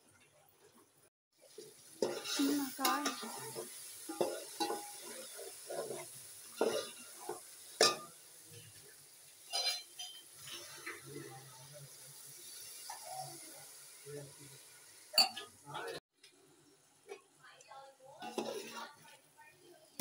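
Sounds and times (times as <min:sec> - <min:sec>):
oil sizzling: 0:00.0 - 0:17.3, 0:18.1 - 0:20.0
spoon clinking on pot: 0:09.5 - 0:10.6, 0:15.2 - 0:15.5
metal spoon scraping a pot: 0:18.2 - 0:19.2.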